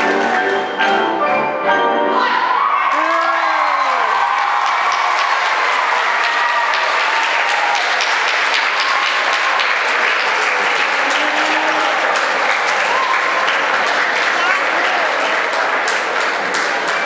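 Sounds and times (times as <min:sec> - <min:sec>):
audience applauding: 0:02.2 - 0:17.0
voices: 0:13.8 - 0:15.8.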